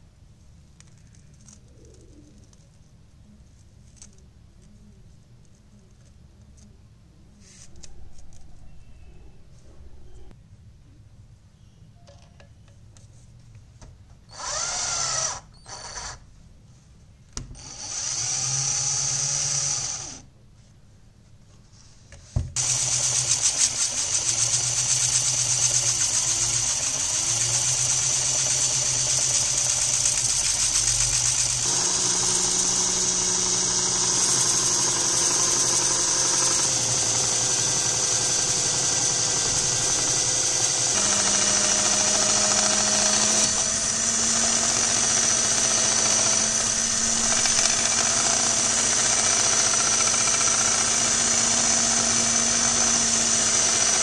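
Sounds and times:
cordless drill whirring: 14.3 - 16.2, 17.6 - 20.3, 22.6 - 54.0.

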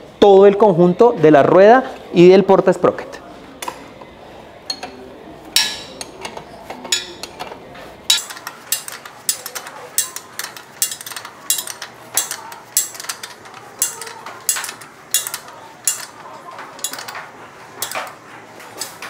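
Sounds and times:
ratchet wrench clicking: 8.1 - 18.2.

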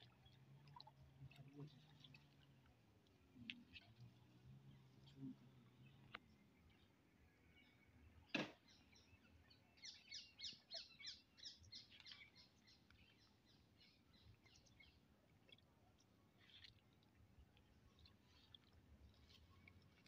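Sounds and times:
bird chirping: 8.6 - 15.0.

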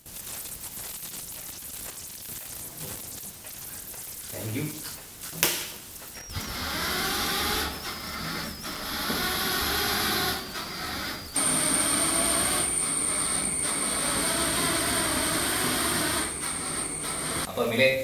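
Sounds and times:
small motors whirring: 5.9 - 17.5
steady high whine: 6.0 - 17.6.

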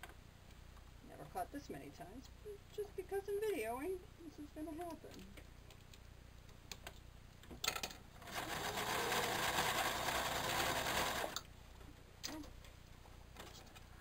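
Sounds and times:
sewing machine stitching: 8.2 - 11.4.

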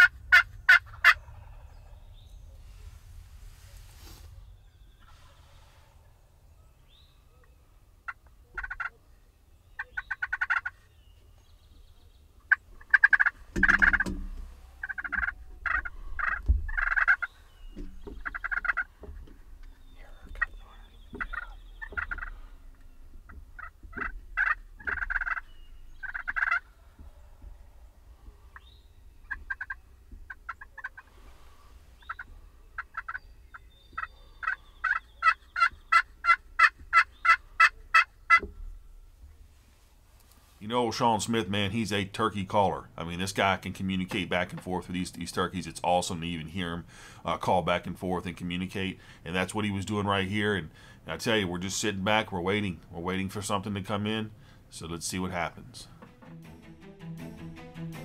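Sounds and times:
turkeys gobbling: 0.0 - 3.0, 7.4 - 9.0, 9.8 - 10.9, 12.4 - 38.9
turkey calls: 0.0 - 39.2.

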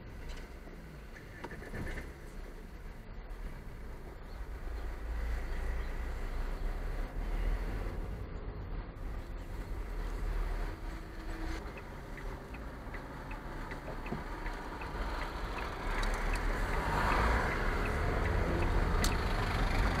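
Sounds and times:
car engine and tyre noise: 0.0 - 20.0
turn indicator ticking: 9.6 - 20.0.

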